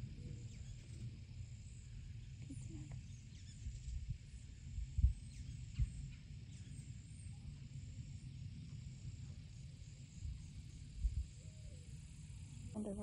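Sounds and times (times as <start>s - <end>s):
high insect drone: 0.0s - 13.0s
faint bird chirps: 0.1s - 7.7s.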